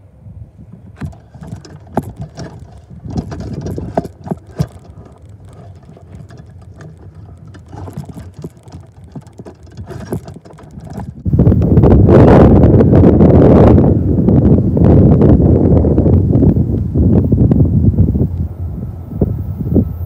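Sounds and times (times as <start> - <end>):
freight cars clanking: 1.0 - 11.3
steel wheels rumbling on rail: 1.0 - 11.7.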